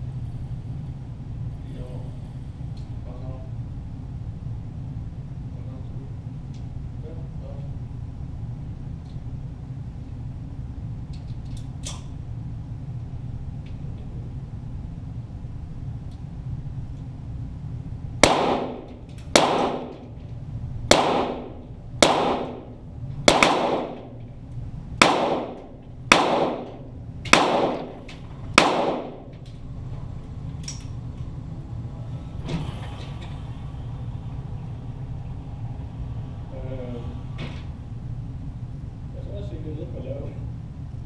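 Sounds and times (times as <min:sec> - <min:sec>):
pistol shots with echo: 0:18.2 - 0:20.1, 0:20.9 - 0:24.2, 0:25.0 - 0:29.3.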